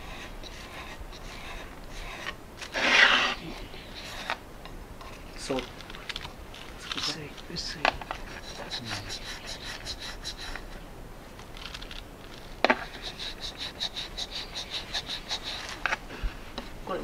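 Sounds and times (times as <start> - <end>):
quick rubbing strokes on ceramic: 0.0 - 4.4, 8.1 - 10.8, 12.4 - 16.0.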